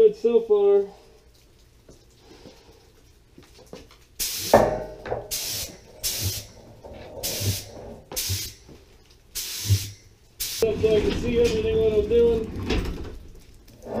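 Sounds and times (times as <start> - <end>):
paint spray gun hissing: 4.2 - 4.7, 5.3 - 6.5, 7.2 - 8.6, 9.4 - 10.7.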